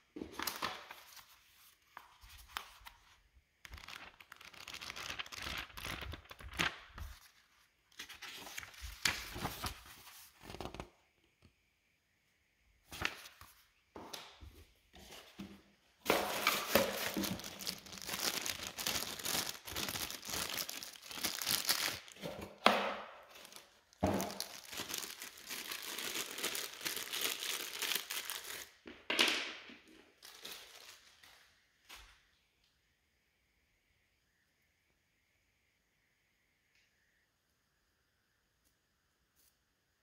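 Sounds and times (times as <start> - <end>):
plastic packaging crinkling: 3.6 - 10.8, 16.1 - 22.6, 23.2 - 28.9, 30.0 - 31.4.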